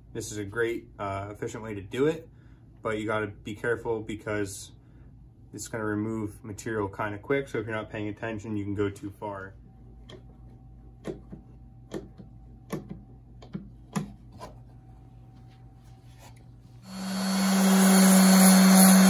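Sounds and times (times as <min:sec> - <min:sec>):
orbital sander whirring: 0:16.8 - 0:19.0.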